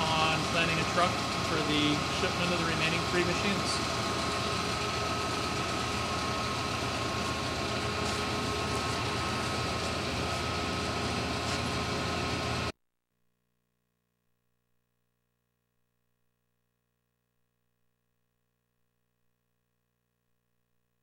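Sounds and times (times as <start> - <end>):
machinery humming: 0.0 - 12.7.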